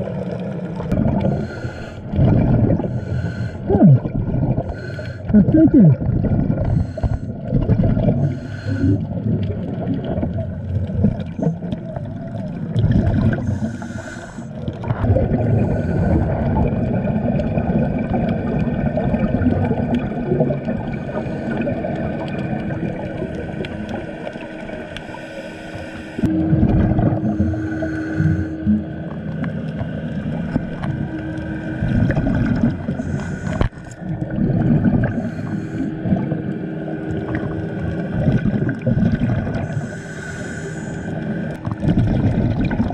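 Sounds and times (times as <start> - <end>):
exhaled bubbles rumbling: 0.0 - 25.2, 26.2 - 42.9
faint steady hum: 0.0 - 42.9
regulator inhale hiss: 1.2 - 2.1, 2.8 - 3.7, 4.7 - 5.3, 6.6 - 7.4, 8.2 - 9.1, 13.4 - 14.6, 15.6 - 16.3, 20.9 - 21.8, 24.9 - 26.3, 27.2 - 28.7, 32.9 - 34.0, 35.0 - 36.7, 39.6 - 41.6.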